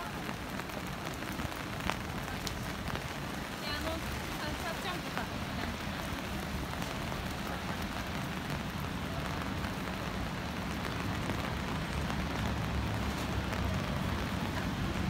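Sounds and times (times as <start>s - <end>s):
rain pattering on pavement: 0.0s - 15.0s
street traffic rumble: 0.0s - 15.0s.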